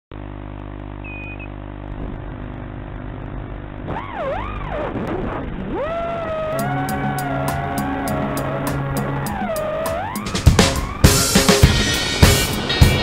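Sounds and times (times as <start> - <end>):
short beep: 1.0 - 1.6
quadcopter motors humming: 1.0 - 11.1.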